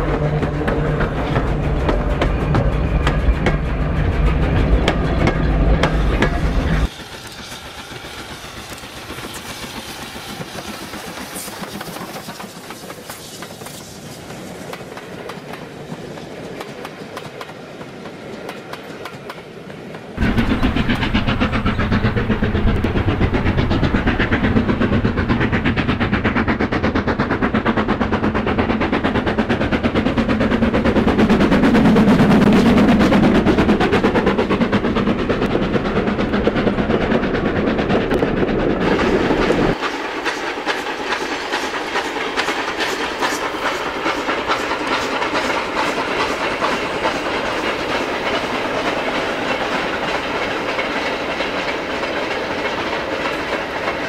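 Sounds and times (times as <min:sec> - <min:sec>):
model train wheels clicking: 0:04.8 - 0:54.0.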